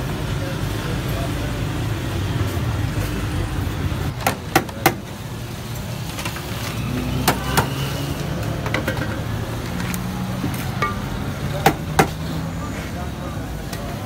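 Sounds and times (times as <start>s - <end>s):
street traffic rumble: 0.0s - 14.0s
metal scoop clinking on pots: 10.6s - 11.2s.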